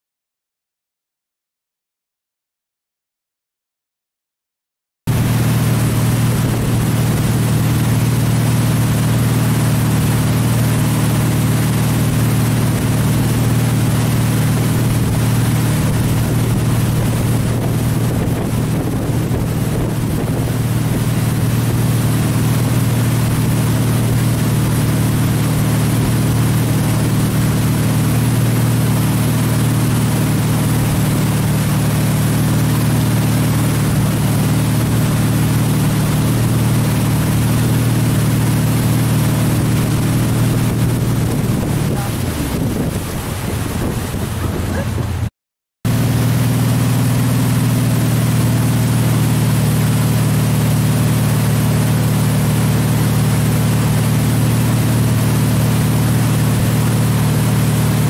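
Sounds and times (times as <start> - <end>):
boat engine droning: 5.1 - 45.3, 45.9 - 58.0
wake rushing: 5.1 - 45.3, 45.9 - 58.0
wind noise: 14.6 - 24.2, 39.2 - 45.3.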